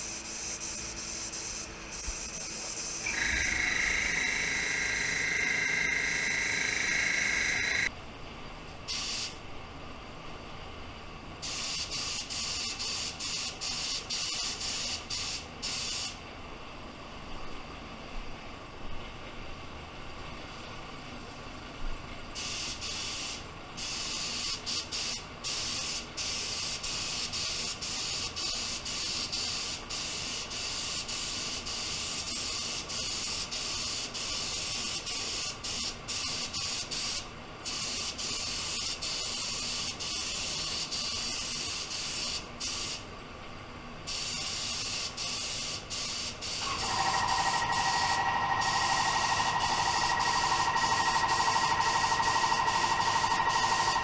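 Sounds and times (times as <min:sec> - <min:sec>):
paint spray gun hissing: 0:00.0 - 0:07.9, 0:08.9 - 0:09.4, 0:11.4 - 0:16.2, 0:22.4 - 0:43.0, 0:44.1 - 0:54.0
steady whistle: 0:02.1 - 0:07.9, 0:46.8 - 0:54.0.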